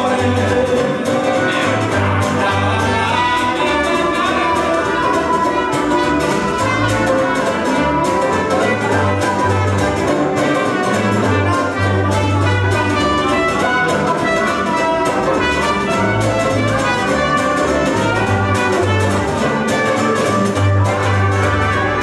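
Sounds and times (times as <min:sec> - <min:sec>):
man singing: 0:00.0 - 0:06.8
acoustic band playing: 0:00.0 - 0:22.0
trumpet melody: 0:00.0 - 0:22.0.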